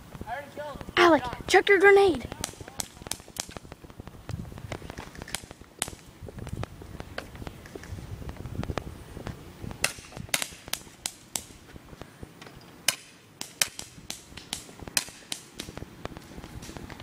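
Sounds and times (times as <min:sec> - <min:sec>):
airsoft guns firing: 0:02.2 - 0:03.7, 0:09.8 - 0:11.6, 0:12.8 - 0:15.8.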